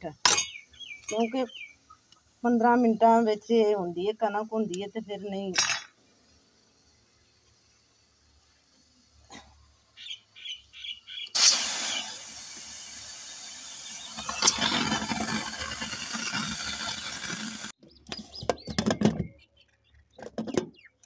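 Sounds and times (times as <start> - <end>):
pressure cooker steam hissing: 11.2 - 17.8.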